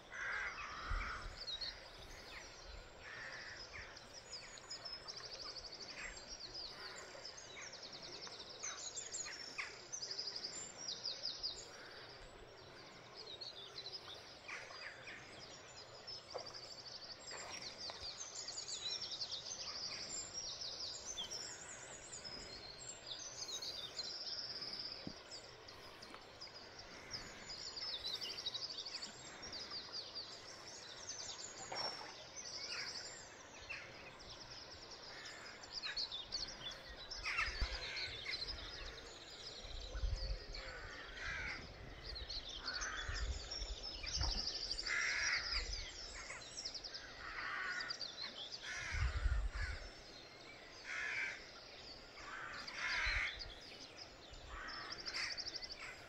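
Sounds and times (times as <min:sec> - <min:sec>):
river water hiss: 0:00.0 - 0:39.6
songbirds singing: 0:00.0 - 0:56.0.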